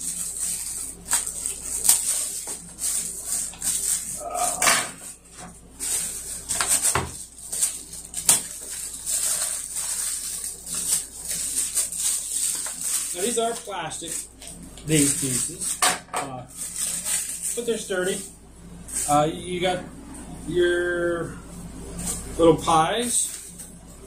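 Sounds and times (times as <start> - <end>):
plastic bags crinkling: 0.0 - 15.8, 16.5 - 18.3.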